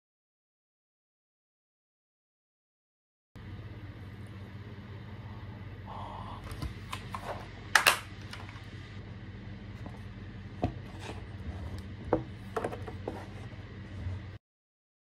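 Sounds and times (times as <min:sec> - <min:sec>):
low steady hum: 0:03.4 - 0:14.4.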